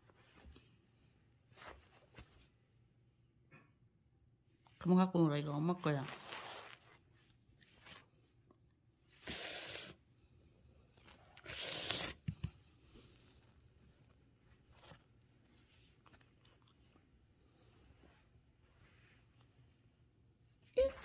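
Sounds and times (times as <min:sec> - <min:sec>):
rustling scrapes against duvet: 0:05.8 - 0:08.1, 0:17.4 - 0:20.1.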